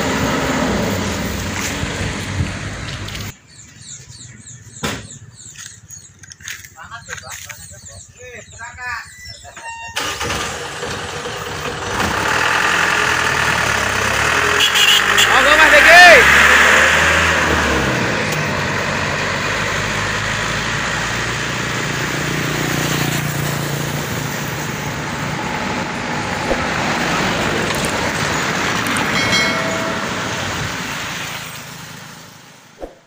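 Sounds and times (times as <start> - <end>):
truck driving away: 0.0 - 3.4, 9.4 - 33.0
pickup passing: 10.0 - 33.0
motorcycle passing: 10.9 - 33.0.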